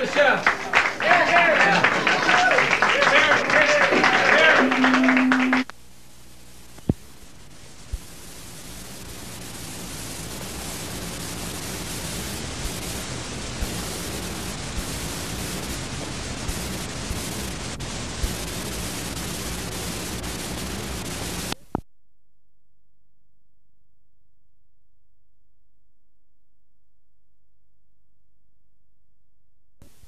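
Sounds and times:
tape static hiss with pops: 0.0s - 21.9s, 29.8s - 30.0s
playback click: 4.5s - 5.7s.

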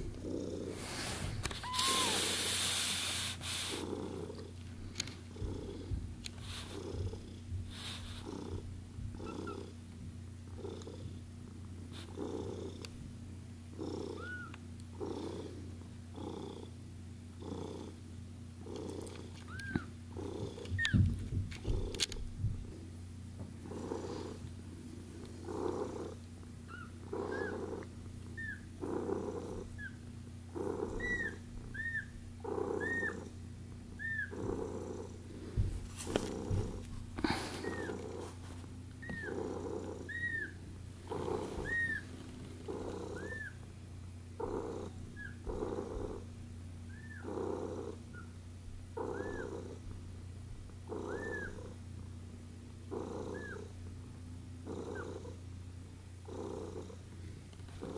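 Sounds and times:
cat purring: 0.0s - 13.1s, 13.7s - 22.8s, 23.4s - 43.6s, 44.2s - 57.9s
kittens squeaking: 1.5s - 2.4s, 14.2s - 14.6s, 19.4s - 19.9s, 20.8s - 21.0s, 26.7s - 27.7s, 28.3s - 28.7s, 30.8s - 32.2s, 32.8s - 33.3s, 34.0s - 34.4s, 37.5s - 38.0s, 39.0s - 39.4s, 40.0s - 40.6s, 41.5s - 42.2s, 43.0s - 43.6s, 49.1s - 49.6s, 51.0s - 51.6s, 53.3s - 53.6s.

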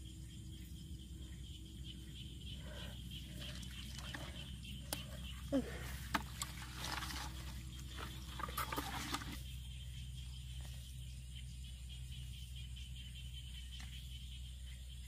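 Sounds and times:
crabs scratching in plastic bucket: 3.4s - 9.4s.

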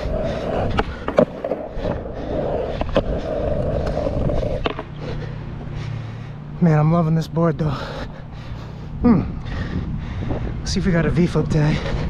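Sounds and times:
skateboard clacks: 0.0s - 5.0s
skateboard wheels rolling on asphalt: 0.0s - 12.0s.

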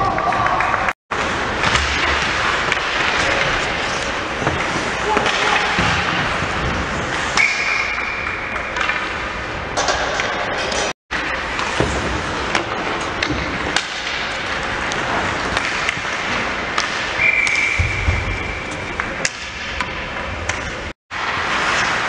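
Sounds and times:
sticks and puck clacking: 0.0s - 22.0s
skates scraping on ice: 1.2s - 7.8s, 10.7s - 22.0s
high whistle: 7.4s - 8.3s, 17.2s - 18.8s.

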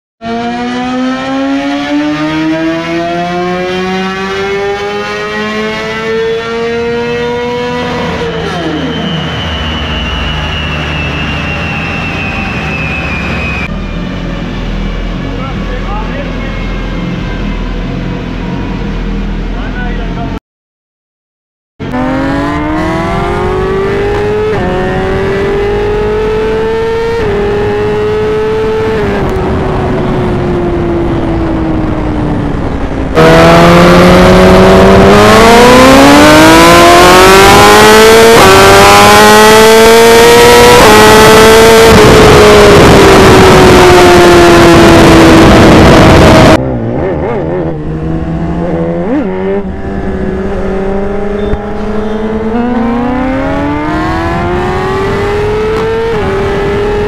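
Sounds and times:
motorcycle engine accelerating: 0.2s - 20.4s, 21.8s - 57.0s
wind rush: 29.0s - 35.1s, 41.4s - 46.6s.

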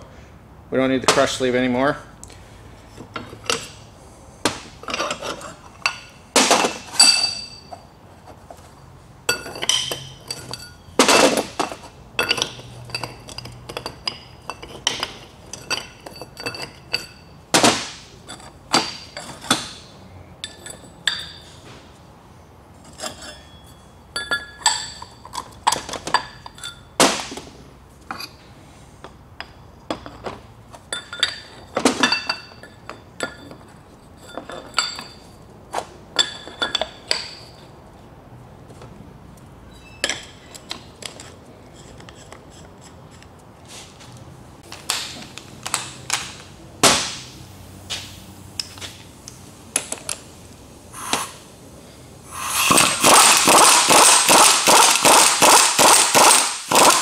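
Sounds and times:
steel parts clanking: 4.5s - 7.9s, 9.2s - 21.5s, 22.9s - 27.0s, 29.4s - 35.4s.

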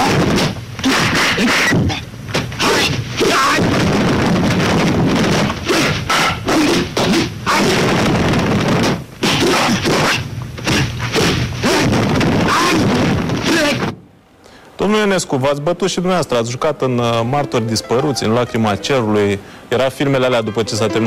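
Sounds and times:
dubbed punch and slap effects: 0.0s - 14.0s.

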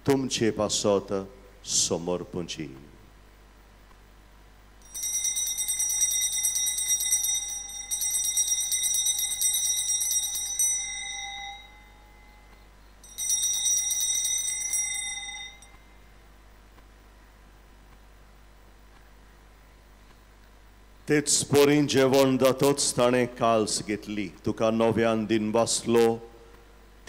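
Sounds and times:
altar bells ringing: 4.8s - 15.8s.

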